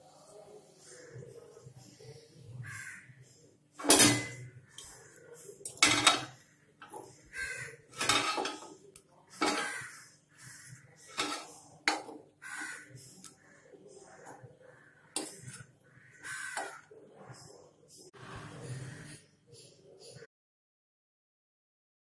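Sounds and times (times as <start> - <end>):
metal fork clinking on a pan: 3.8 - 4.9, 5.6 - 6.4, 8.0 - 8.8.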